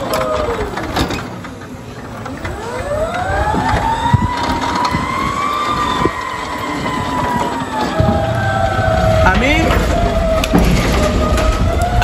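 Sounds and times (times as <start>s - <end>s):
electric forklift motor whining: 0.0s - 12.0s
forklift knocks and clunks: 7.4s - 12.0s.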